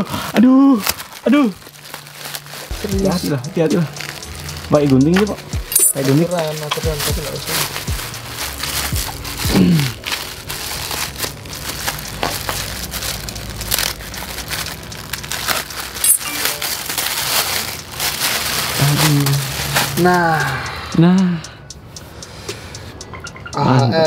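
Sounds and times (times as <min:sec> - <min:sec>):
plastic wrapping crinkling and tearing: 0:00.0 - 0:20.1.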